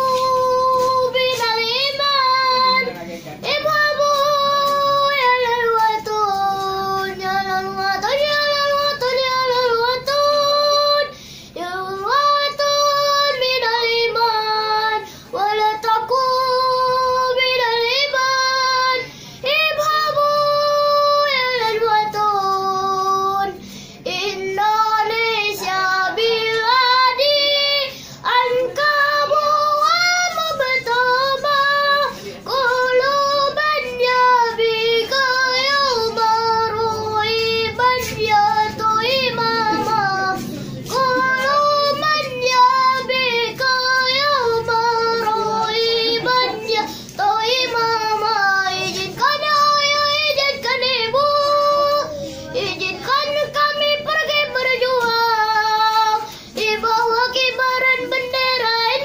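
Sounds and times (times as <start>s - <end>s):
boy singing unaccompanied: 0.0s - 59.0s
singer breathing: 11.1s - 11.6s, 15.0s - 15.4s, 19.1s - 19.4s, 23.6s - 24.1s, 27.9s - 28.2s, 46.9s - 47.2s, 52.2s - 52.6s, 56.3s - 56.6s.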